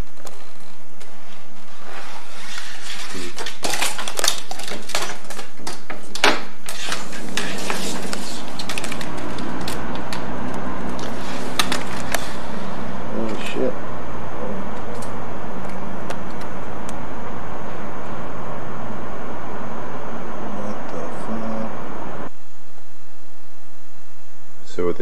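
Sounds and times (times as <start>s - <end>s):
hard objects clattering: 3.0s - 12.5s
low steady hum: 6.6s - 25.0s.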